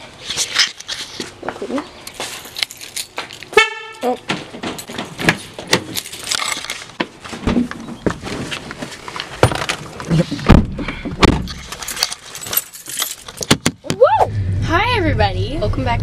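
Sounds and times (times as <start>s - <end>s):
keys jangling: 2.2s - 3.6s, 5.9s - 6.9s, 11.5s - 13.5s.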